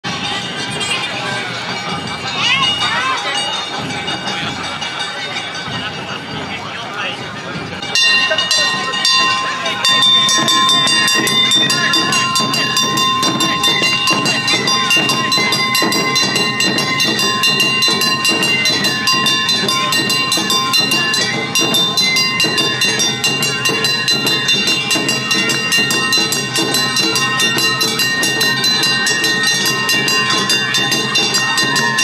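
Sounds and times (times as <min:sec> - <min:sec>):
drums beating: 0:00.0 - 0:32.0
high held notes: 0:00.1 - 0:32.0
hand gong clanging: 0:07.9 - 0:32.0.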